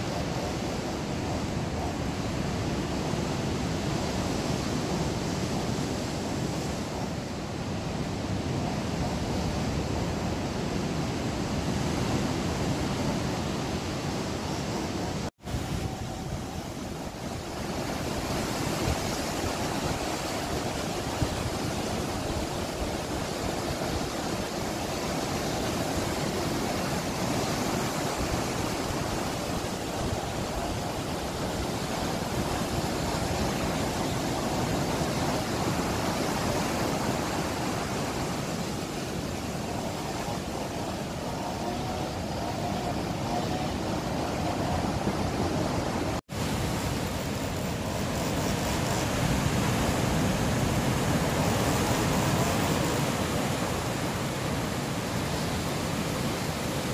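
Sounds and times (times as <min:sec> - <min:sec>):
sea waves breaking over rocks: 0:00.0 - 0:56.9.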